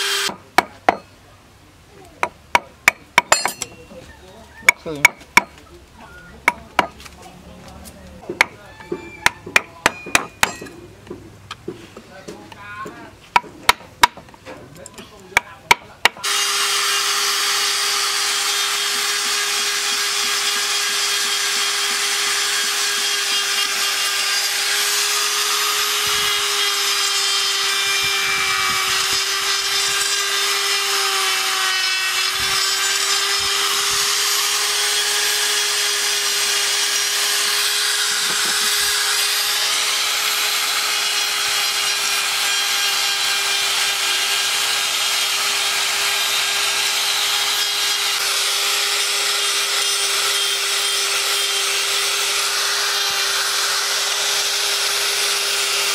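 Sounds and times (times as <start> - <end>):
rotary tool whining: 0.0 - 0.4, 16.2 - 55.9
chisel tapping wood: 4.7 - 5.6, 6.4 - 7.0, 8.2 - 11.7, 12.3 - 16.2.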